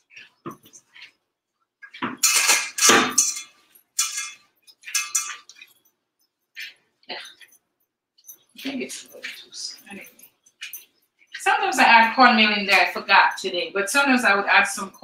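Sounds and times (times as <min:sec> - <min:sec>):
metal bowl knocking and scraping: 0:01.8 - 0:05.9.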